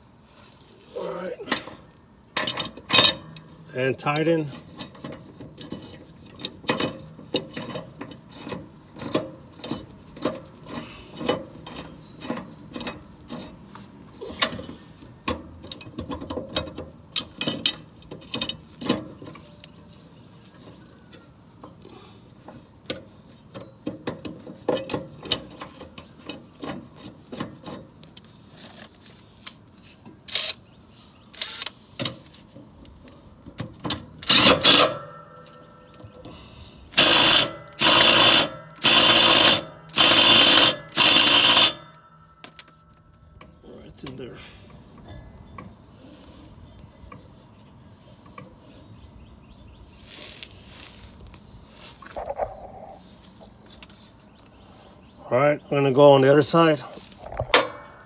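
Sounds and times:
impact wrench hammering: 34.3s - 35.7s, 37.0s - 42.8s.

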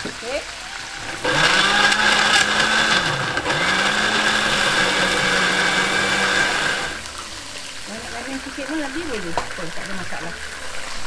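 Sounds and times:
blender motor grinding: 0.8s - 7.1s.

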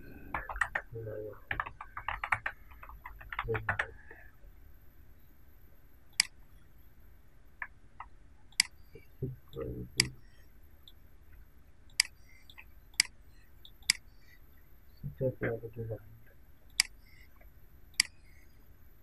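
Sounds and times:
computer mouse clicking: 1.5s - 3.9s, 11.9s - 14.0s, 16.7s - 17.2s, 18.0s - 18.4s.

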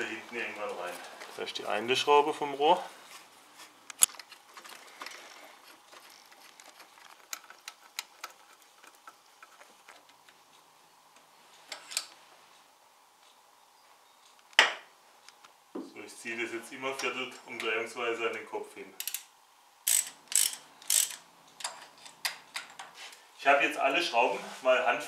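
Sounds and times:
metallic clicks of bolts and washers: 19.0s - 19.3s, 19.9s - 22.9s.

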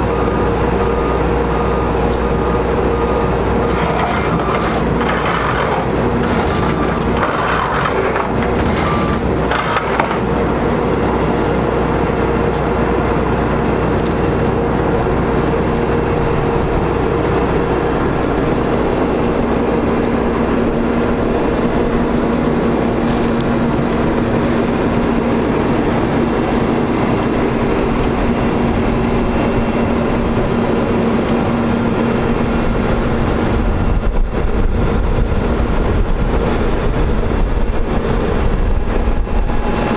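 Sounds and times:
diesel engine running: 0.0s - 39.9s
hydraulic whine: 0.0s - 39.9s.

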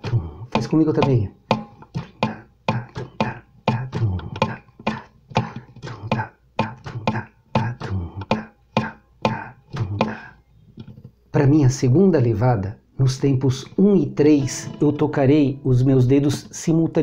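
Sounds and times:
fingerstyle acoustic guitar: 0.0s - 11.2s, 13.7s - 17.0s.

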